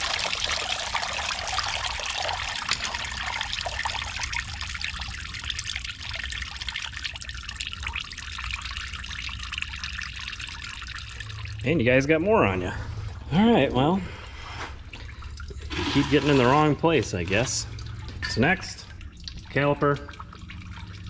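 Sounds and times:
liquid pouring and trickling: 0:00.0 - 0:13.3, 0:14.8 - 0:21.0.

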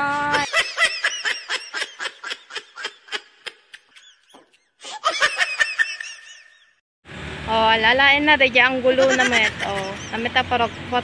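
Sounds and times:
high-pitched giggles: 0:00.1 - 0:06.5, 0:09.0 - 0:10.1.

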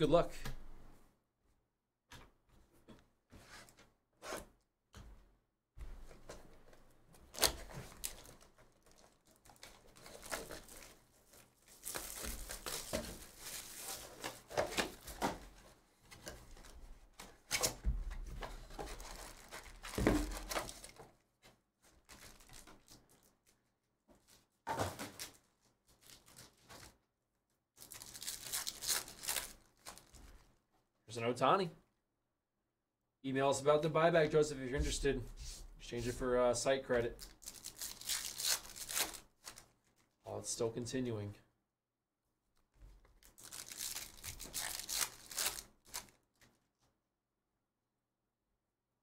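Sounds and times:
foil pack tearing: 0:07.3 - 0:14.2, 0:27.8 - 0:30.2, 0:37.3 - 0:39.6, 0:43.3 - 0:46.2
foil wrapper crinkling: 0:07.3 - 0:14.5, 0:18.8 - 0:21.0, 0:22.0 - 0:23.6, 0:27.8 - 0:30.5, 0:37.2 - 0:40.1, 0:43.2 - 0:46.5
cardboard tearing and scraping: 0:07.3 - 0:15.6, 0:43.3 - 0:46.1.

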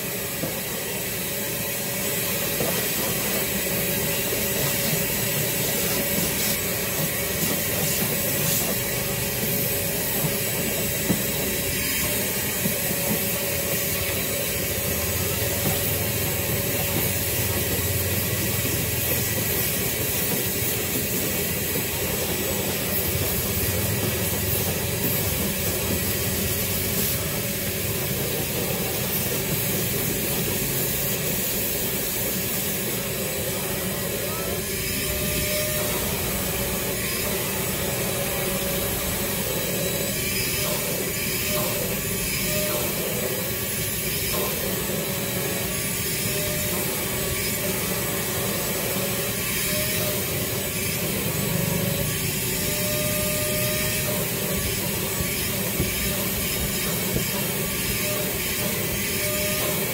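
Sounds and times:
vacuum cleaner running: 0:00.0 - 0:59.9.

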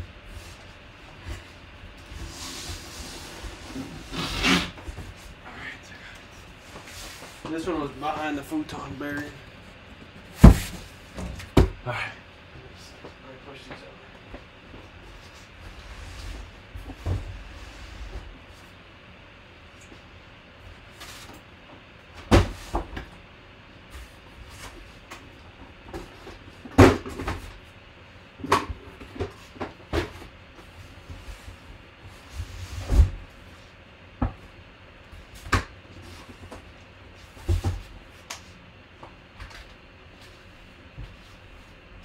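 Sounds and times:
cardboard boxes thumping: 0:10.3 - 0:11.8.

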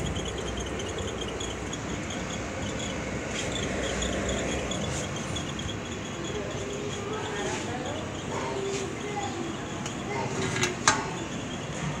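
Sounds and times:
faint rapid high ticking: 0:00.0 - 0:11.8
washing machine motor whirring: 0:00.0 - 0:12.0.

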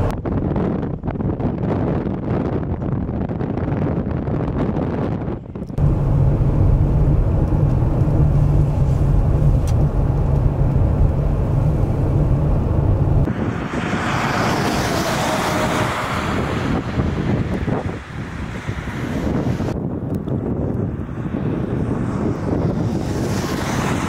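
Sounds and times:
vehicle engine rumbling: 0:00.0 - 0:24.0
wind blowing through snow: 0:05.8 - 0:24.0.

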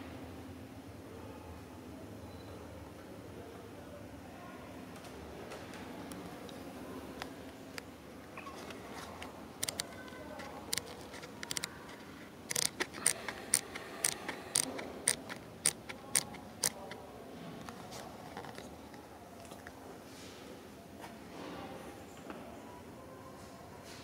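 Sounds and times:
low background noise: 0:00.0 - 0:24.0
sharp clicks: 0:08.6 - 0:17.0.

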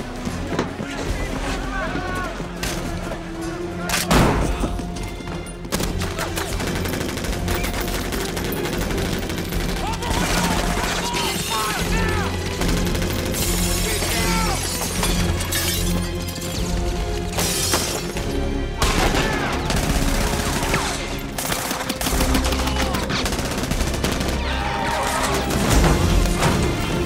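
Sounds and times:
dramatic orchestral music: 0:00.0 - 0:27.0.

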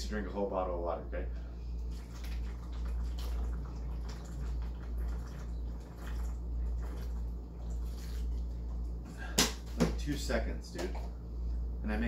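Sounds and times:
low hum: 0:00.0 - 0:12.0
man gulping water: 0:01.8 - 0:09.8.

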